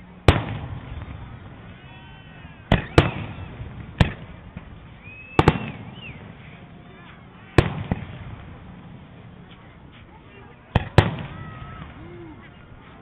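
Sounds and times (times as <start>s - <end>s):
fireworks booming: 0.0s - 6.4s, 7.5s - 9.0s, 10.7s - 12.0s.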